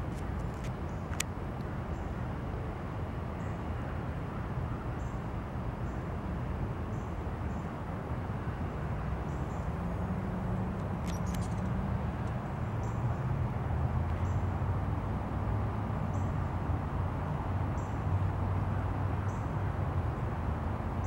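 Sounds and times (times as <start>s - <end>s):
sharp clicks: 10.8s - 12.4s.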